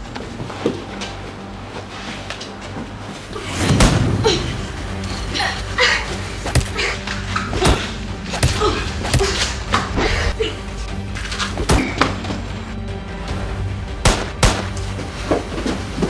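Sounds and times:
punches and body hits: 6.4s - 10.4s.

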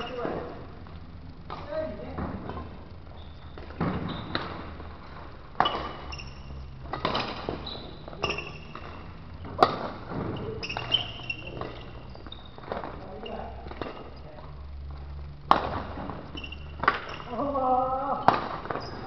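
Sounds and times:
shoes squeaking on court: 0.0s - 17.4s, 18.2s - 19.0s
racquet striking shuttlecock: 5.6s - 11.9s, 15.5s - 17.3s, 18.2s - 18.9s.

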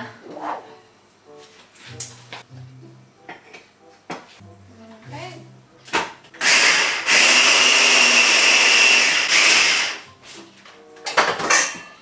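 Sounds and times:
electric hand blender motor: 6.4s - 10.1s.

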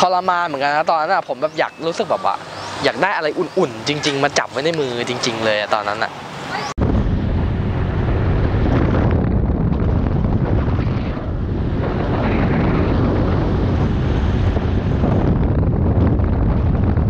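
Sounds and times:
wind buffeting microphone: 6.5s - 17.0s.

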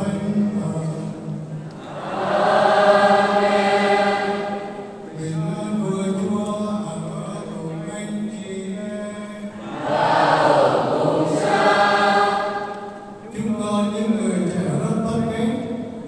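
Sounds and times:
man chanting over a pa: 0.0s - 1.4s, 5.1s - 9.6s, 13.2s - 16.0s
choir singing: 1.8s - 5.1s, 9.6s - 13.1s.

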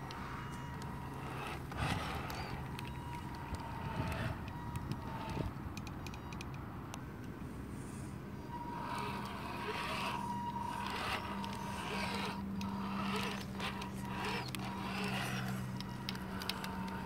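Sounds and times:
electric motor whining: 0.0s - 5.9s, 7.8s - 17.0s.

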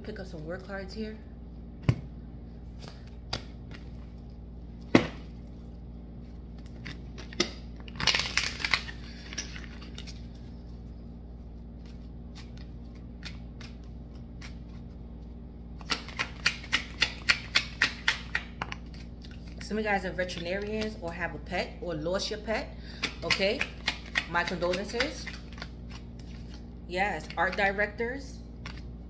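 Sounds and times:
cards rustling while shuffled: 11.6s - 19.6s, 23.0s - 27.8s.

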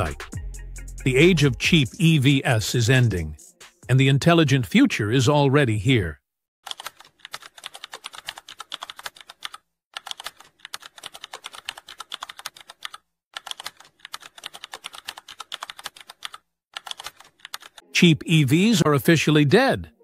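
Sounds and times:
keyboard typing clicks: 6.7s - 17.8s.

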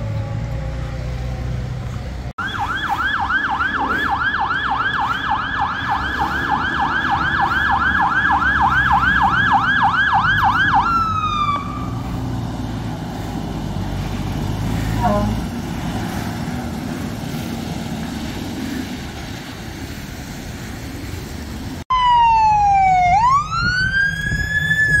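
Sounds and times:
engine and road rumble: 0.0s - 25.0s
siren yelp: 2.4s - 12.0s, 21.9s - 25.0s
short falling siren tone: 21.9s - 25.0s.

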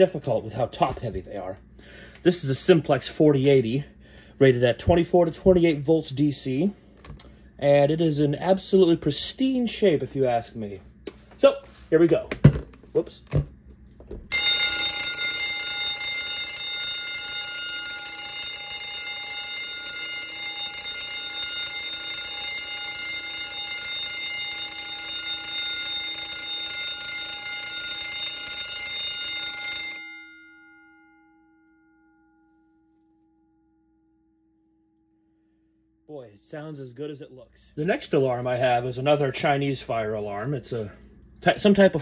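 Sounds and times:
fire alarm bell ringing: 14.3s - 34.0s.

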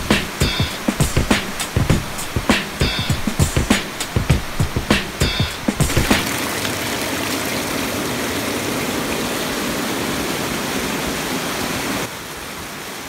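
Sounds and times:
waterfall rushing over boulders: 0.0s - 13.0s.

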